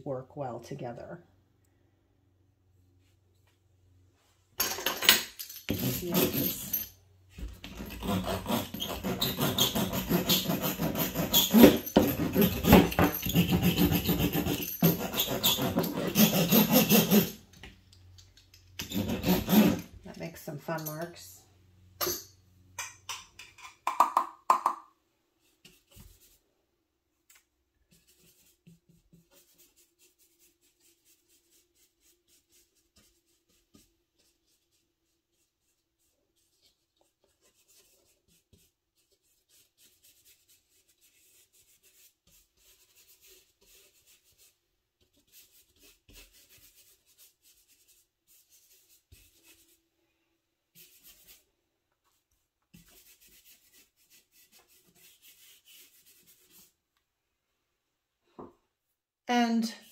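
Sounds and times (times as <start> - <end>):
paintbrush strokes on paper: 27.9 - 49.8, 50.7 - 56.8.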